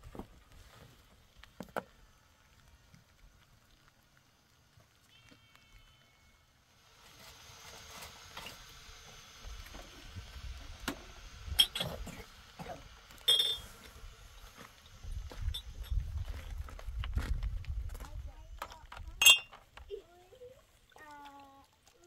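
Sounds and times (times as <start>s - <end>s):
ringing metallic clinks: 13.3s - 13.7s, 19.2s - 19.6s.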